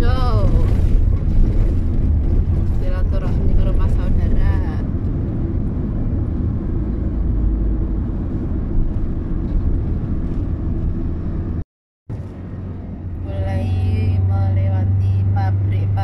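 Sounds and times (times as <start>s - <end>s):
car engine and road noise: 0.0s - 16.0s.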